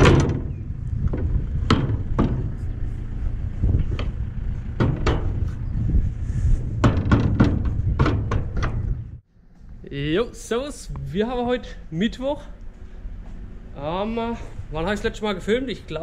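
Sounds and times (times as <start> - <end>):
metallic knocks and clanks: 0.0 - 2.8, 3.7 - 5.6, 6.7 - 9.2
tractor engine running: 0.0 - 9.3.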